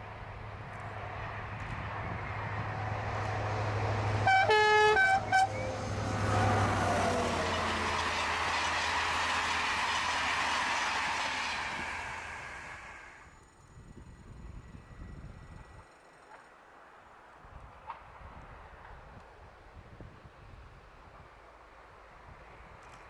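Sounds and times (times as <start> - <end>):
train coaches rolling on rails: 0.0 - 13.3
diesel locomotive engine drone: 0.0 - 19.7
train horn: 4.2 - 8.4.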